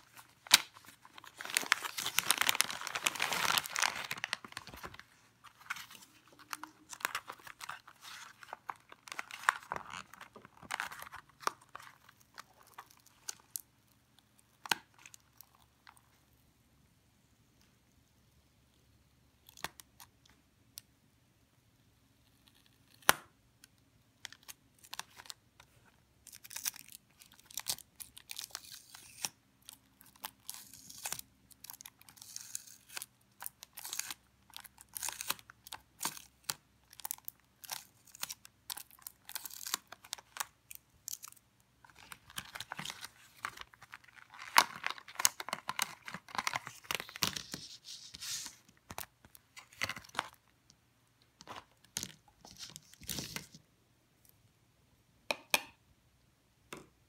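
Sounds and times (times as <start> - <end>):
plastic packaging crackling: 0.0 - 13.6, 30.1 - 50.5.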